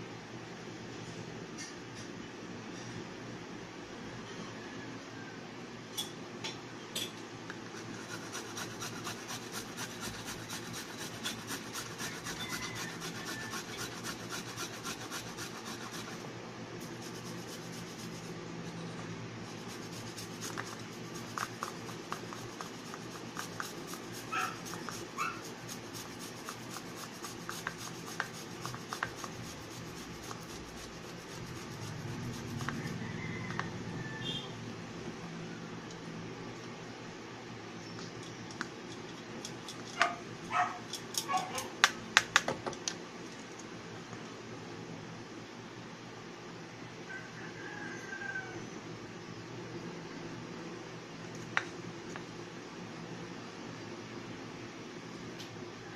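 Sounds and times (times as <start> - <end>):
scraping on metal grater: 7.7 - 16.2, 16.8 - 18.8, 19.4 - 33.0.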